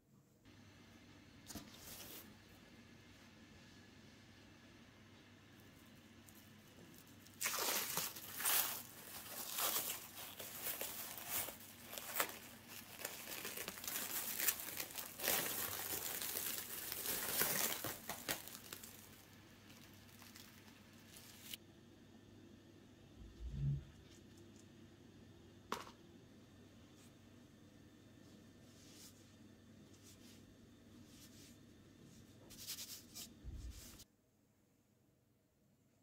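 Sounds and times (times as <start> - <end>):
cling film crinkling: 6.3 - 21.6.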